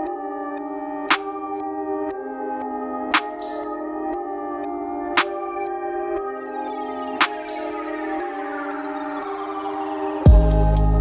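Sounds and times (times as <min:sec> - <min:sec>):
ambient synth chords: 0:00.0 - 0:11.0.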